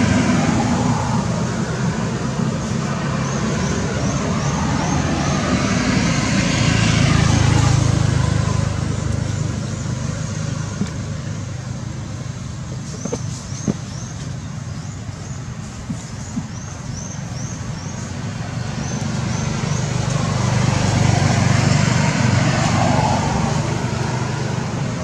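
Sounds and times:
vehicle passing: 0.0s - 11.6s, 17.3s - 25.0s.

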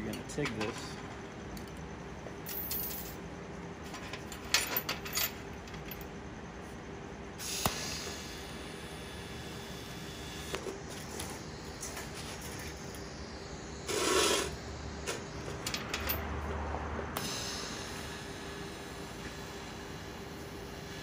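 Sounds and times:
chain links clinking on steel: 2.4s - 3.2s, 3.8s - 6.1s, 15.6s - 16.2s
welding arc hissing: 7.4s - 10.6s, 11.6s - 15.1s, 17.2s - 21.0s.

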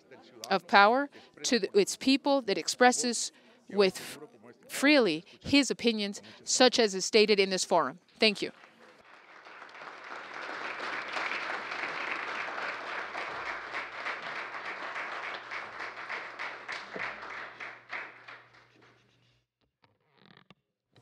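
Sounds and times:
audience applauding: 8.5s - 19.0s.

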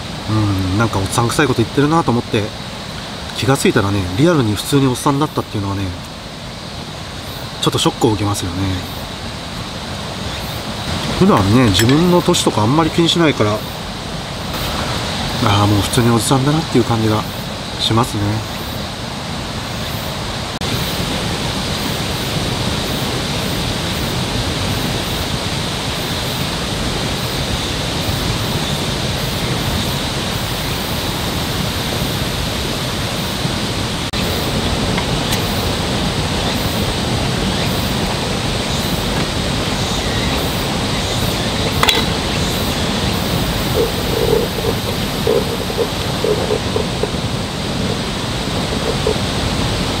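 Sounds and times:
rushing outdoor ambience: 0.0s - 50.0s
sharp click: 41.7s - 42.1s.

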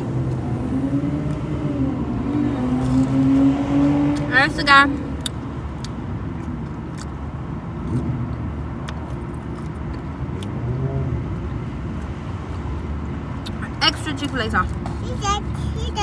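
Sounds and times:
chewing clicks: 5.2s - 7.2s.

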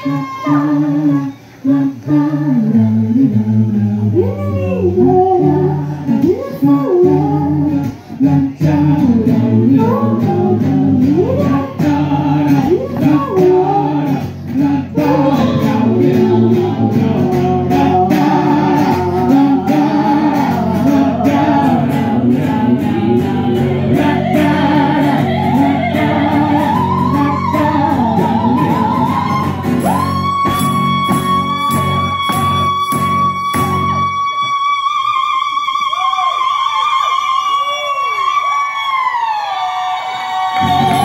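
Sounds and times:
female voices singing: 0.0s - 37.4s, 39.9s - 41.0s
strummed acoustic guitar: 7.0s - 34.1s
tambourine rhythm: 29.6s - 33.9s.

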